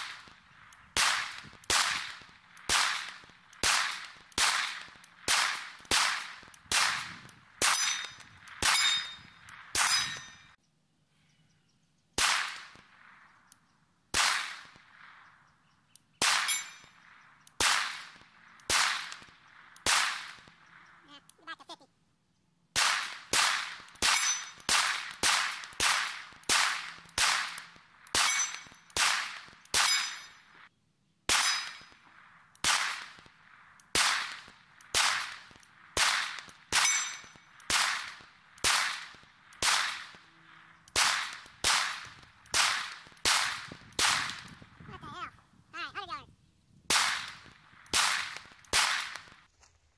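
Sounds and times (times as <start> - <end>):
pistol shots: 0.0 - 10.4, 12.2 - 13.1, 14.1 - 15.0, 16.2 - 20.7, 22.7 - 30.4, 31.3 - 32.0, 32.6 - 40.2, 40.9 - 44.6, 46.9 - 49.4.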